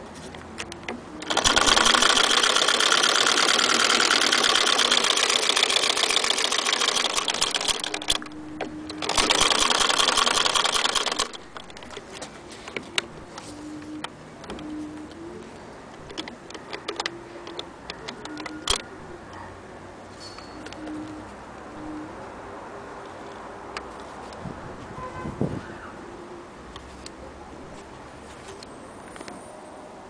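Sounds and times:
sewing machine clattering: 1.2s - 8.4s, 9.0s - 12.0s.

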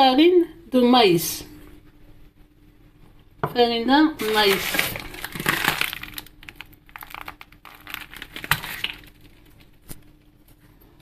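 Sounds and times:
faint steady hum: 0.0s - 11.0s
bowl of dry ingredients rustling: 4.2s - 10.1s.

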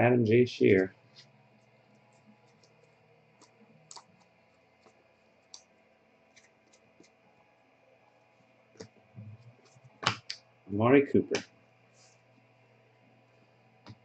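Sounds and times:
trading cards and plastic sleeve handled: 0.8s - 5.7s, 6.3s - 7.2s.

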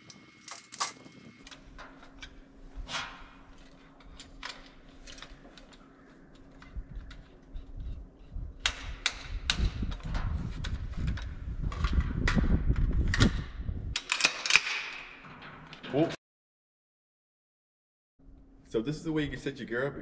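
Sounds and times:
low hum: 18.2s - 20.0s.

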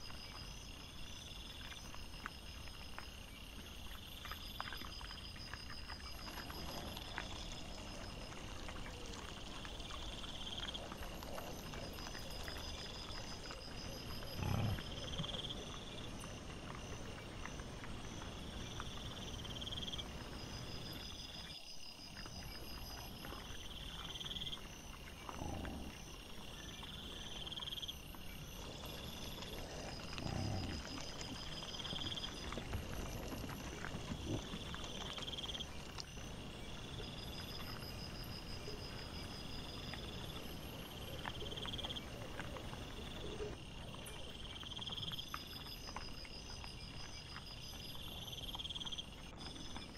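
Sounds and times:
insects chirping in trills: 0.0s - 49.9s
wild boar grunting: 14.0s - 15.7s, 25.2s - 26.2s, 28.6s - 32.4s.

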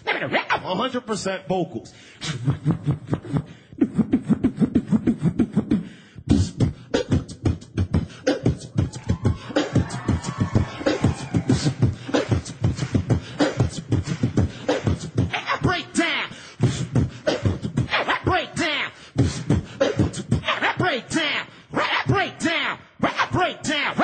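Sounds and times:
vocal pitch glides: 2.2s - 22.2s
human beatbox rhythm: 2.2s - 24.0s.

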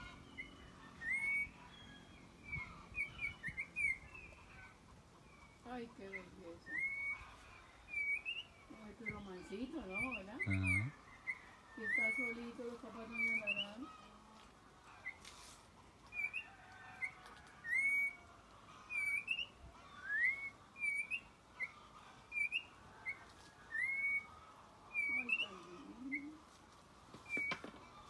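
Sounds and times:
bird whistled notes: 23.7s - 24.3s.

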